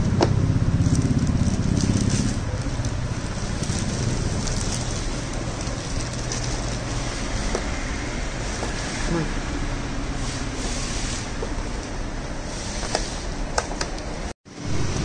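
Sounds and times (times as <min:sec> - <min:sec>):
low engine rumble: 0:00.0 - 0:12.4
plastic bag crinkling: 0:00.8 - 0:07.3.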